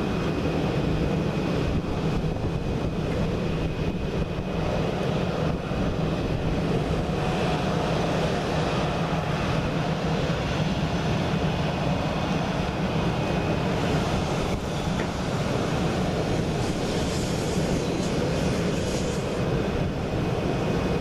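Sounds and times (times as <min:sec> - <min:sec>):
jet engines taxiing: 0:00.0 - 0:21.0.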